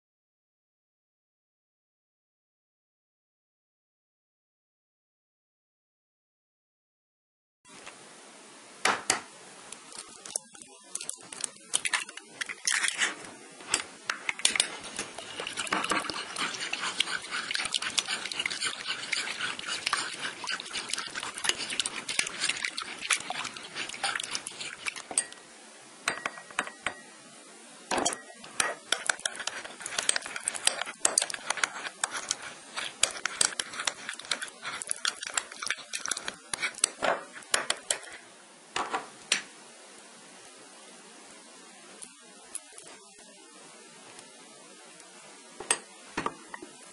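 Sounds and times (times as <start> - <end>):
utensil beating eggs in tray: 9.9 - 25.4, 28.6 - 38.2.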